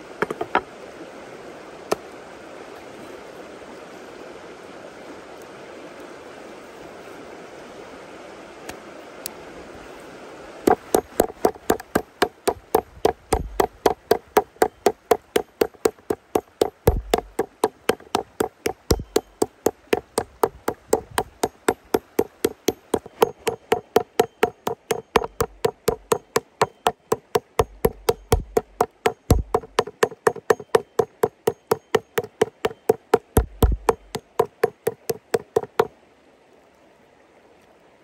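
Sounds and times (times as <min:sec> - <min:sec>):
stream running: 0:00.0 - 0:38.0
mallet beating meat on board: 0:10.7 - 0:35.9.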